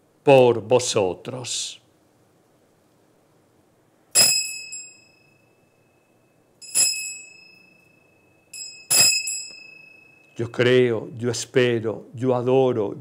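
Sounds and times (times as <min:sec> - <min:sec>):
bell ringing: 0:04.2 - 0:10.6.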